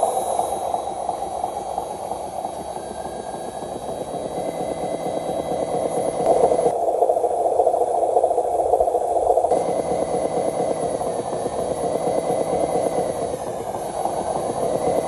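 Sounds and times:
electric motor whirring: 0:09.5 - 0:15.0.

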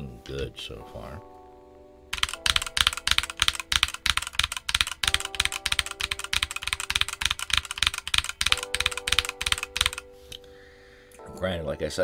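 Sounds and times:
mechanical keyboard typing: 0:02.1 - 0:10.1.

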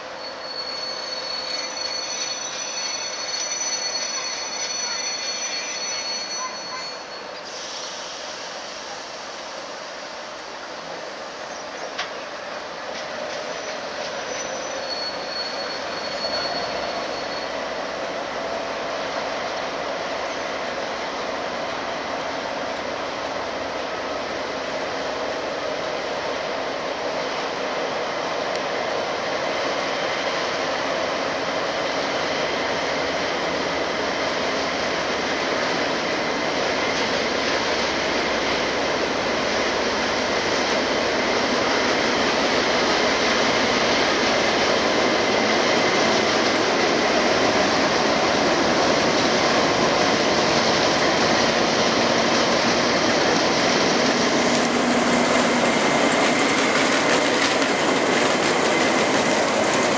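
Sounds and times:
diesel locomotive engine running: 0:16.2 - 0:59.9.

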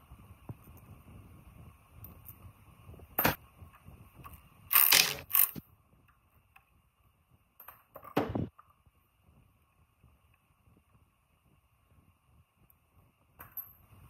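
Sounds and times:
compressed air blasts: 0:04.7 - 0:05.6.

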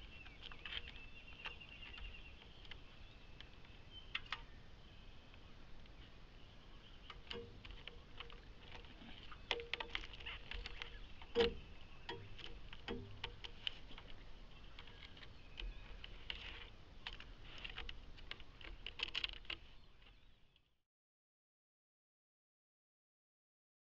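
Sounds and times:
animal claws scratching on bark: 0:07.1 - 0:11.5, 0:12.2 - 0:20.2.

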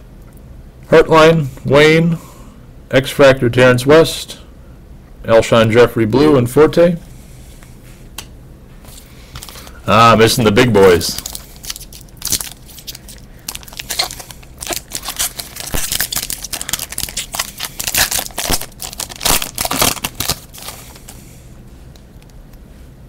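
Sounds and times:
foil wrapper crinkling and tearing: 0:10.8 - 0:21.2.

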